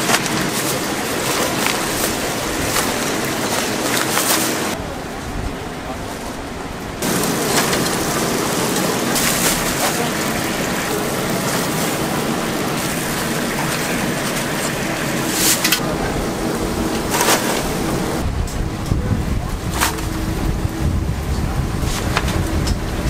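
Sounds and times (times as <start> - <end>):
chicken deep-frying in oil: 7.0 - 15.8.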